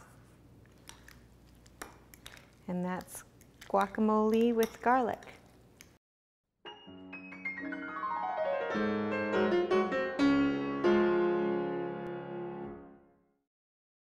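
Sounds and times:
piano jingle: 0:06.6 - 0:13.0.

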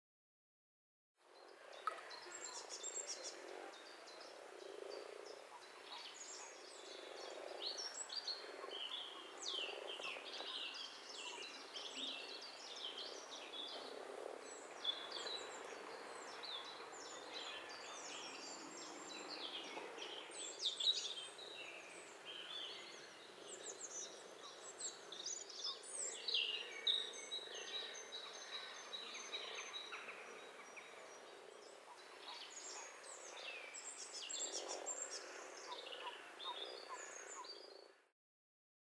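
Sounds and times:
birds chirping and trilling: 0:01.4 - 0:38.1
frogs croaking: 0:34.4 - 0:37.5.

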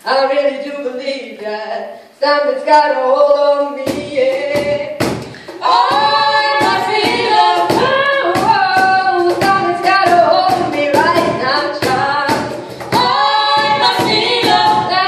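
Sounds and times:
woman singing lead: 0:00.0 - 0:15.0
backing singers in harmony: 0:03.9 - 0:15.0.

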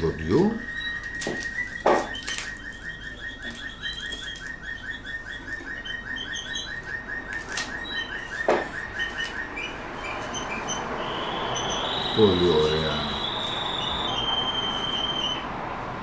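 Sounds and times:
canary singing trill: 0:00.0 - 0:15.6
knocks on wooden nest box: 0:08.5 - 0:08.7.

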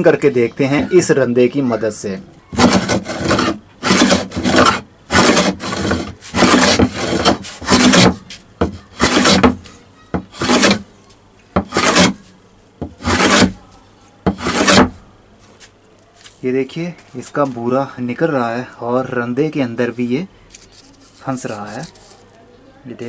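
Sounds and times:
hand plane shaving wood: 0:02.5 - 0:09.6, 0:10.2 - 0:10.9, 0:11.6 - 0:13.6, 0:14.3 - 0:15.0.

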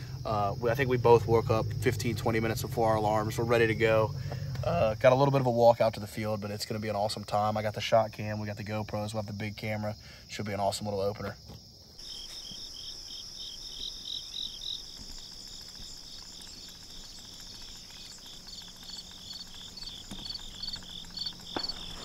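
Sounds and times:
insect trilling: 0:00.0 - 0:05.2, 0:12.0 - 0:22.0
insect chirping rhythmically: 0:00.0 - 0:22.0.

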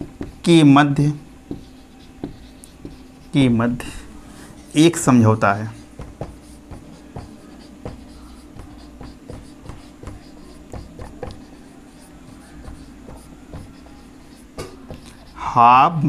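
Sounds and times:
marker writing on a whiteboard: 0:00.0 - 0:16.0.

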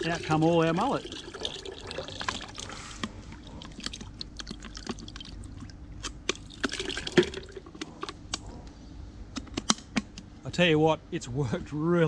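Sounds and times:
water trickling into bucket: 0:00.0 - 0:07.7.

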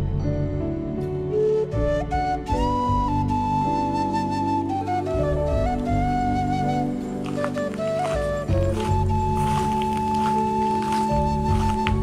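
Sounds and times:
soft sustained accompaniment: 0:00.0 - 0:12.0
slow flute-like melody: 0:00.1 - 0:12.0.

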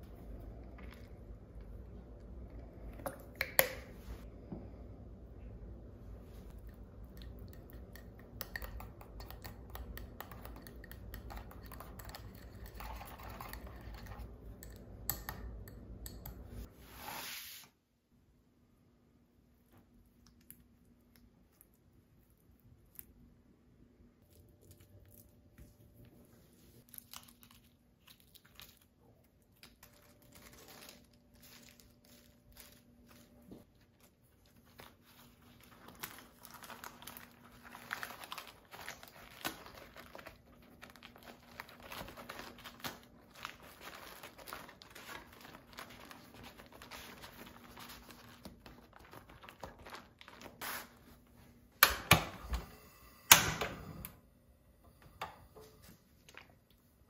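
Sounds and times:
tortilla crinkling and rustling: 0:24.3 - 0:51.6.

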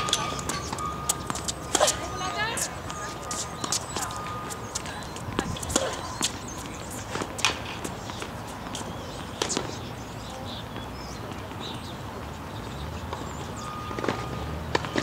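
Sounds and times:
racket hitting tennis ball: 0:00.0 - 0:06.5
footsteps on court: 0:00.0 - 0:09.8.

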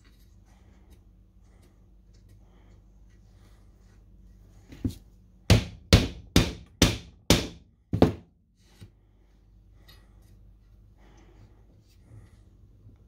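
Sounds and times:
hammer striking wood: 0:05.5 - 0:08.3.

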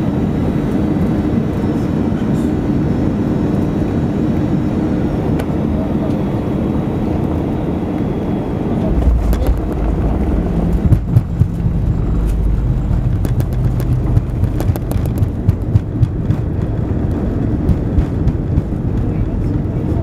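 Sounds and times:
aircraft cabin rumble: 0:00.0 - 0:20.0
low hum stepping down in pitch: 0:08.8 - 0:18.9.

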